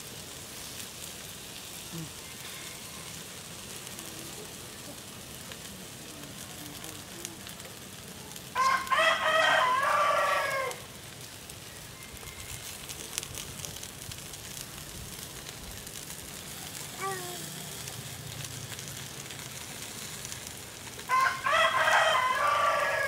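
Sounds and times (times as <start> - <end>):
meat sizzling on a grill: 0.0 - 23.0
rooster crowing: 2.1 - 3.3, 8.5 - 10.9, 11.6 - 13.2, 21.0 - 23.0.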